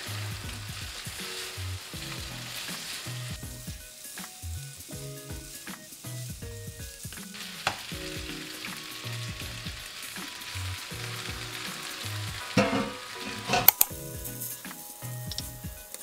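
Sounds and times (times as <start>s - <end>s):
food sizzling in a frying pan: 0.0s - 16.0s
utensil scraping pan: 12.4s - 13.9s
utensil knocking against pan: 12.6s - 13.8s.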